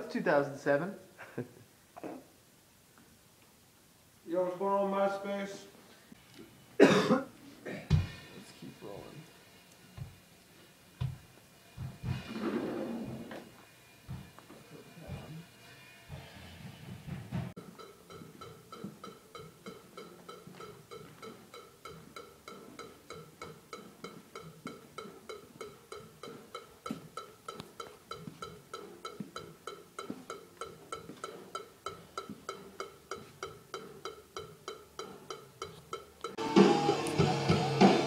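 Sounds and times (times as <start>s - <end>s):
metronome beeps: 17.6s - 37.7s.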